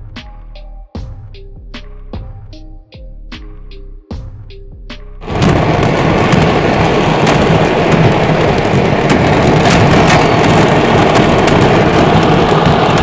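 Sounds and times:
fireworks crackling and popping: 5.2s - 13.0s
sharp firework cracks: 5.2s - 13.0s.

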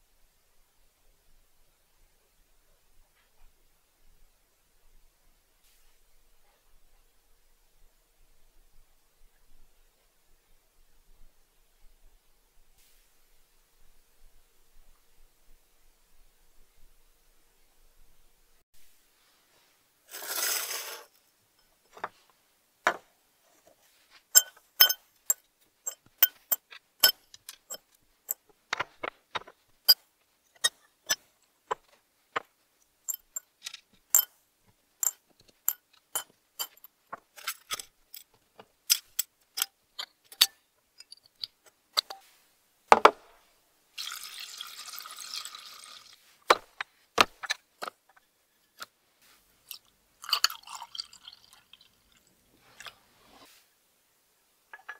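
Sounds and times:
steady hiss: 4.2s - 10.6s, 11.2s - 17.8s
metal screws clinking into bowl: 24.4s - 28.4s, 33.1s - 34.3s, 35.0s - 37.9s.

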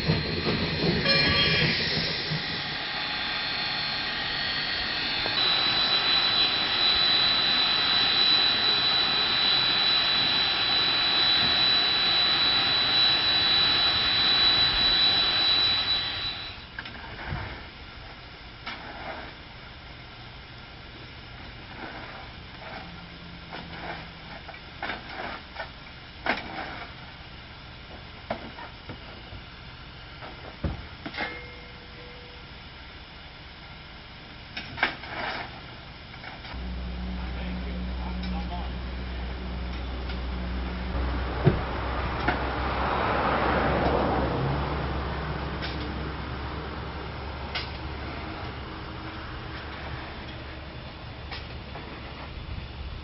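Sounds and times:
short steady tone: 0.0s - 16.8s, 36.6s - 42.3s
steam locomotive hissing: 0.0s - 16.8s.

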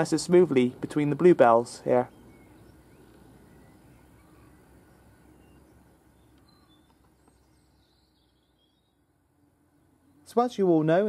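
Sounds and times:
low hum: 0.0s - 10.4s
distant bird chirps: 0.0s - 11.0s.

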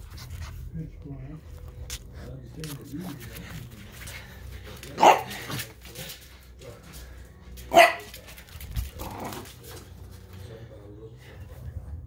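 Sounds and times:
puppy barking: 5.0s - 5.5s, 7.7s - 8.1s.

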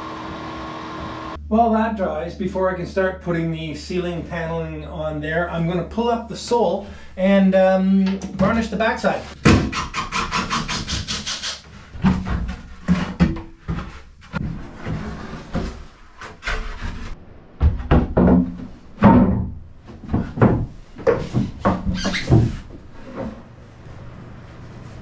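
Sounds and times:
wood scraping against beams: 9.1s - 17.2s.

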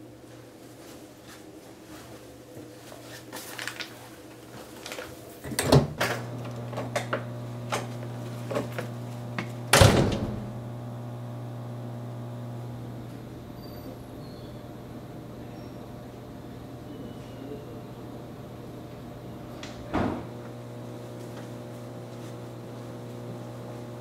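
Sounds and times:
low electrical hum: 0.0s - 24.0s
elevator doors clunking: 9.7s - 10.6s
loud thud: 9.7s - 10.6s.

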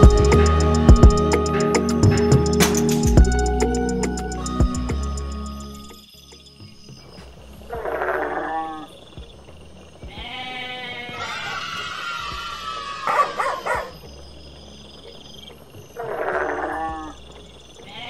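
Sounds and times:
sheep and goats bleating: 10.1s - 13.9s, 16.0s - 17.2s.

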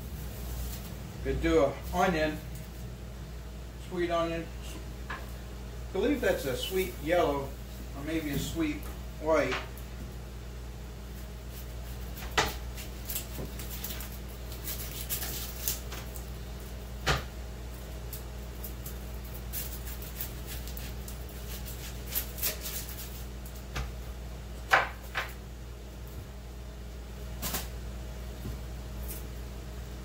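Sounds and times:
knife cutting onion on board: 19.5s - 23.9s.

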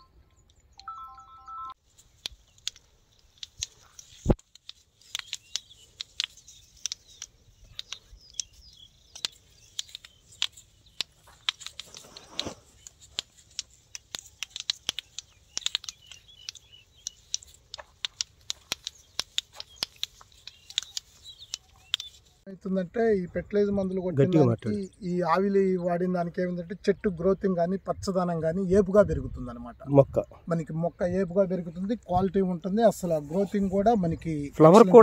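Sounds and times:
birds chirping faintly: 0.0s - 35.0s
flower stems snapping: 2.0s - 22.4s.

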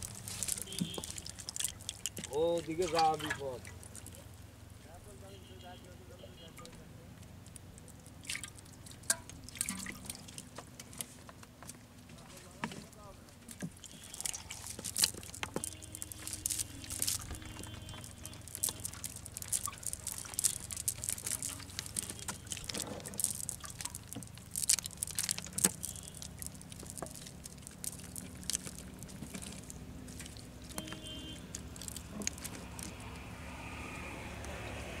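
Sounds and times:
wet net and shells clicking: 0.0s - 4.3s, 6.6s - 11.8s, 13.5s - 34.6s.

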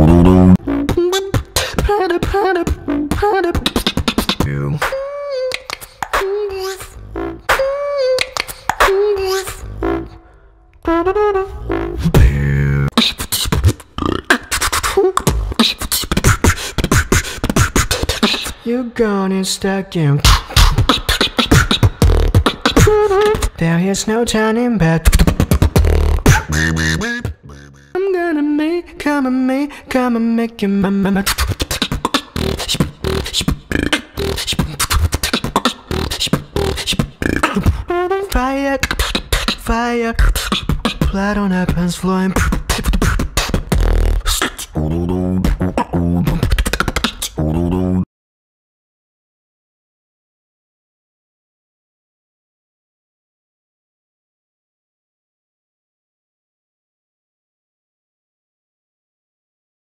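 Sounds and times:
deep bass hum: 0.0s - 1.0s, 11.7s - 12.9s
human beatboxing: 0.0s - 10.2s, 11.5s - 18.7s, 20.2s - 23.7s, 24.9s - 28.0s, 31.1s - 48.1s.

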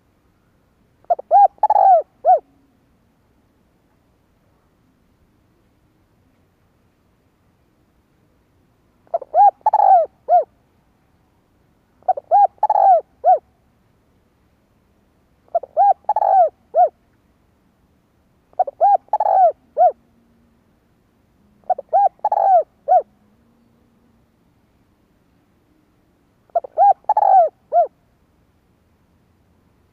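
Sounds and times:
dove cooing: 1.0s - 2.7s, 9.1s - 10.5s, 12.0s - 13.4s, 15.5s - 17.0s, 18.5s - 20.0s, 21.6s - 23.3s, 26.5s - 28.0s.

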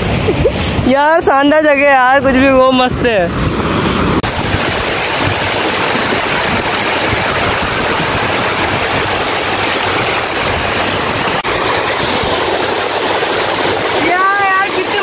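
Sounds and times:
waterfall rushing: 3.3s - 15.0s.

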